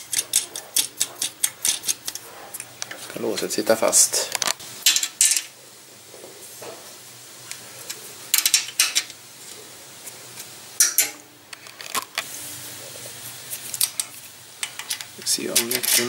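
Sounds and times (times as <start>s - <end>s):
spanner clicking on nuts: 0.0s - 3.0s.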